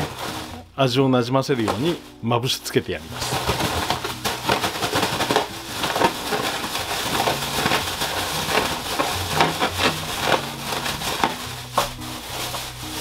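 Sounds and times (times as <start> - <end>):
plastic bag crinkling: 0.0 - 0.7, 3.0 - 13.0
vegetable pieces tumbling in bag: 0.0 - 0.7, 3.1 - 13.0.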